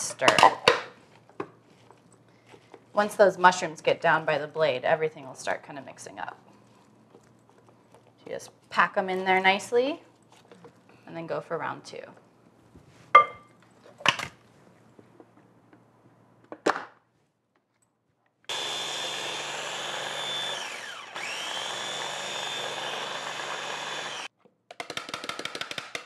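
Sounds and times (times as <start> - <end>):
electric food chopper whining: 18.5 - 24.3.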